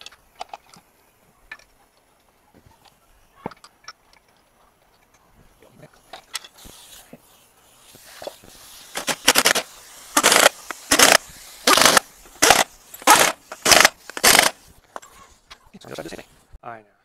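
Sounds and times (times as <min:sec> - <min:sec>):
pneumatic impact wrench bursts: 0:08.2 - 0:14.7.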